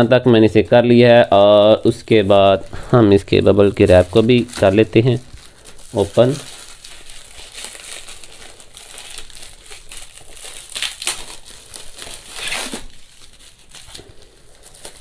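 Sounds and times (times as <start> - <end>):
bubble wrap crinkling: 0.0 - 15.0.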